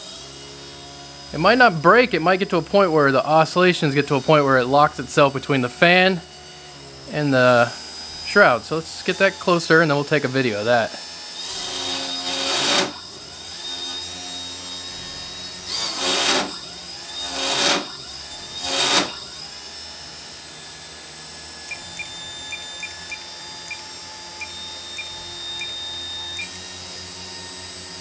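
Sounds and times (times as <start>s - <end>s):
motor spinning fan high whine: 0.0s - 28.0s.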